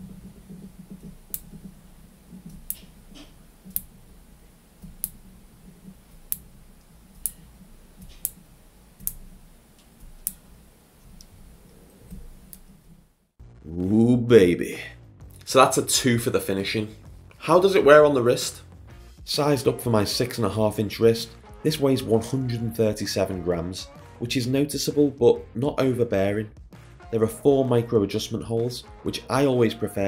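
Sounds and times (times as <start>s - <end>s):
watch bezel clicking: 0.0s - 12.9s.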